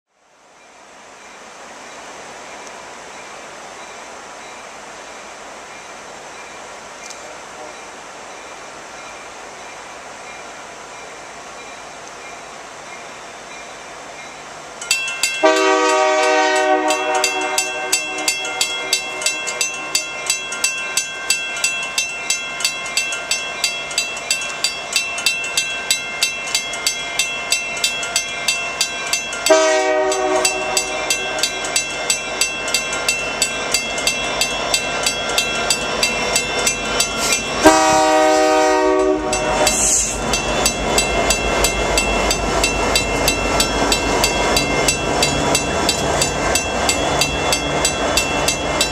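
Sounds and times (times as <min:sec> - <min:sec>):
bell ringing steadily: 0:13.0 - 0:37.8, 0:38.9 - 0:48.9
locomotive horn blasts: 0:15.4 - 0:19.2, 0:29.5 - 0:31.6, 0:37.6 - 0:40.2
locomotive engines rumbling: 0:15.4 - 0:48.9.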